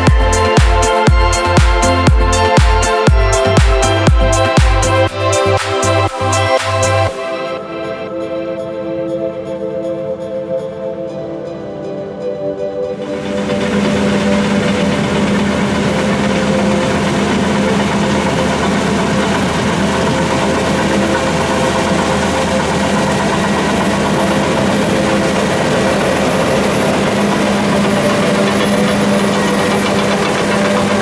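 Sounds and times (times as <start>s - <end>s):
combine harvester droning: 13.0s - 31.0s.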